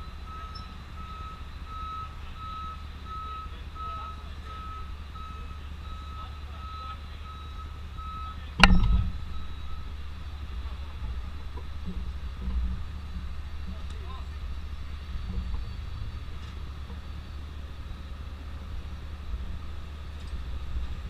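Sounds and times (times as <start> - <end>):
reversing alarm beeping: 0.0 - 10.1
engine rumble: 0.0 - 21.0.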